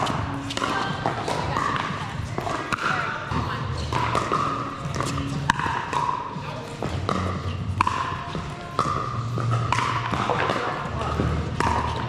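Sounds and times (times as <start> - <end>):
paddles striking plastic ball: 3.9 - 10.8.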